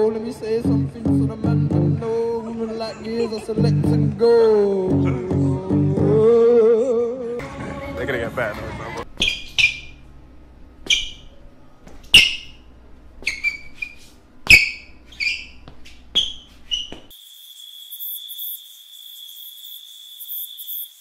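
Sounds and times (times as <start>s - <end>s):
crickets chirping: 17.1s - 21.0s.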